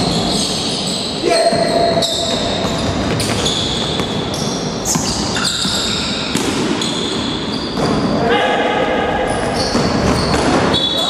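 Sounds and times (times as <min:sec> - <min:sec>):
sneakers squeaking on wooden floor: 0:00.0 - 0:08.2, 0:09.2 - 0:11.0
basketball bouncing: 0:01.5 - 0:08.1.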